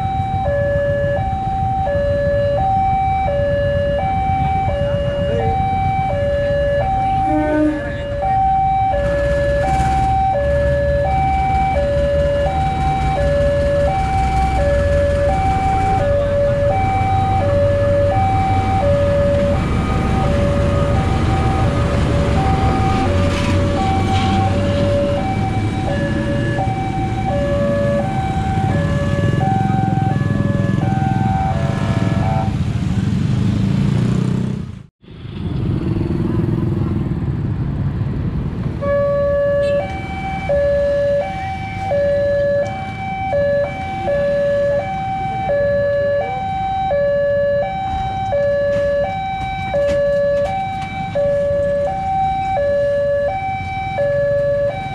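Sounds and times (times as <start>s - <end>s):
level crossing two-tone alarm: 0.0s - 32.5s, 38.8s - 54.9s
locomotive rumbling past: 2.6s - 34.7s.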